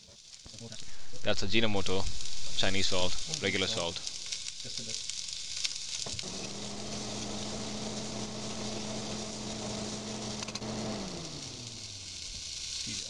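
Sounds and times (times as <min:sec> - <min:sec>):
vegetables frying in a pan: 0:00.0 - 0:13.0
appliance motor humming: 0:06.0 - 0:12.6.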